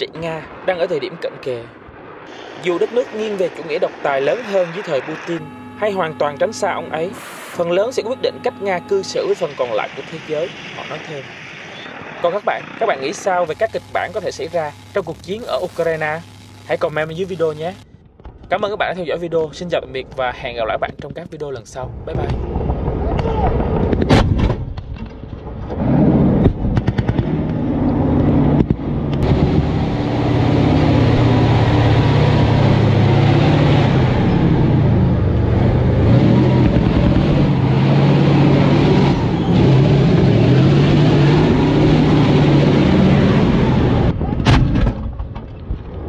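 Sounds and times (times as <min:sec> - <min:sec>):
tank engine running: 0:24.7 - 0:46.0.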